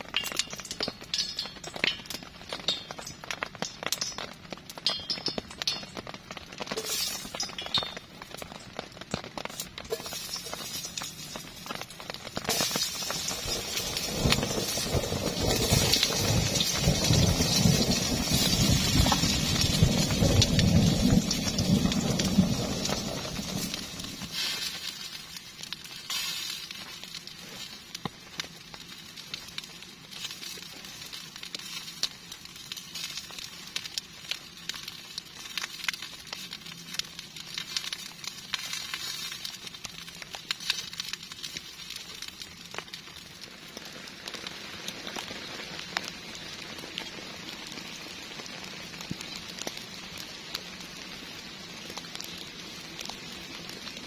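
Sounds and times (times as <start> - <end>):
heavy rain falling: 0.0 - 25.3
thunder rumbling: 13.0 - 24.3.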